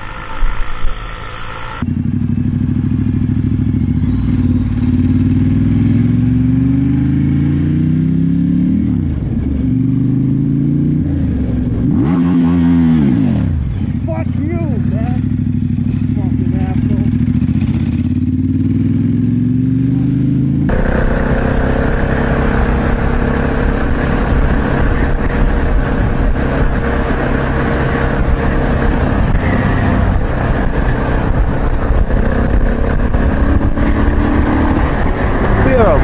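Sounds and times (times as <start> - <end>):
motorcycle engine running: 0.0 - 36.0
wind rush on microphone: 20.7 - 36.0.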